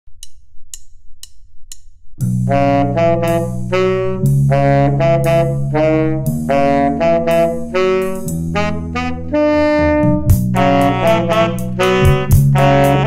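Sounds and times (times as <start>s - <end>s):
drumstick click: 0.1s - 2.4s
jazz saxophones playing chords: 2.2s - 13.0s.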